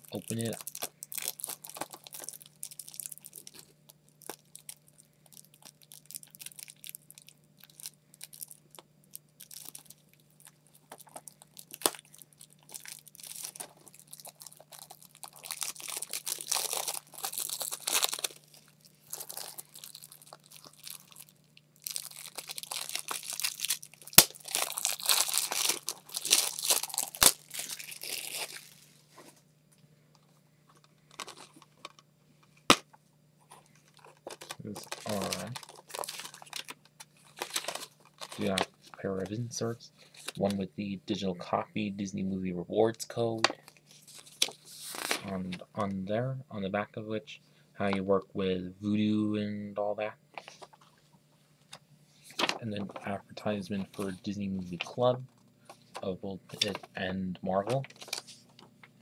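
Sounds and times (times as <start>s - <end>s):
plastic shrink-wrap crinkling: 0.0s - 29.1s, 30.7s - 32.0s, 33.4s - 39.0s, 40.0s - 40.5s, 43.5s - 45.6s, 50.4s - 51.0s, 52.2s - 53.1s, 57.7s - 58.7s.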